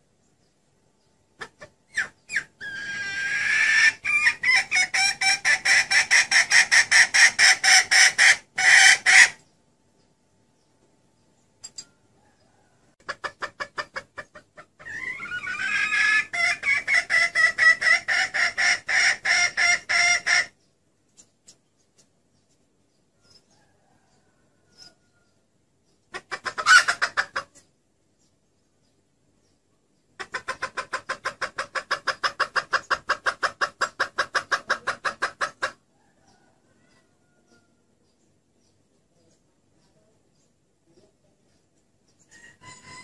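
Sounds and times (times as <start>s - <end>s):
hen clucking rapidly: 1.3s - 9.5s, 12.3s - 22.7s, 25.9s - 27.8s, 30.0s - 38.0s.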